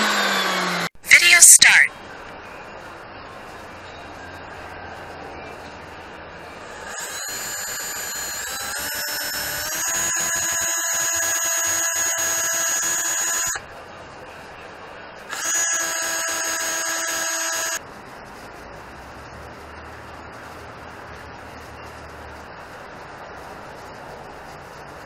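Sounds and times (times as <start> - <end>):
cordless drill whining: 0.0 - 0.9, 6.8 - 13.6, 15.3 - 17.8.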